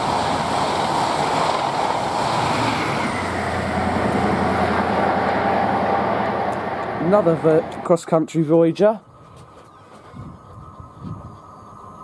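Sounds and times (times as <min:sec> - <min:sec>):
train wheels on rails: 0:00.0 - 0:08.0
train passing at speed: 0:00.0 - 0:09.0.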